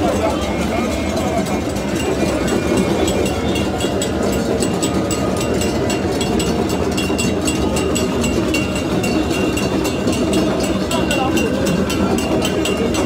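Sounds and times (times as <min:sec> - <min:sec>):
crowd and boats din: 0:00.0 - 0:13.0.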